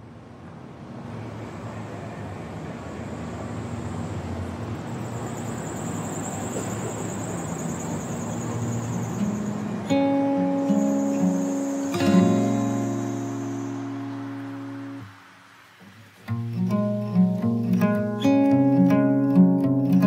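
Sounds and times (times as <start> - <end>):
vehicle engine idling: 3.4 - 10.0
steady high whine: 4.8 - 16.2.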